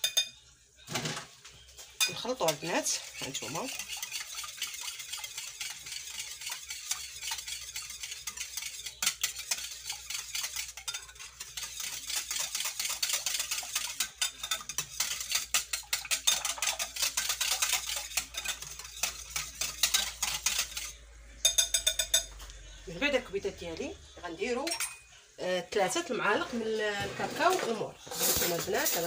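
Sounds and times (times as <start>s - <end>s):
whisk clicking against glass bowl: 2.0s - 22.3s.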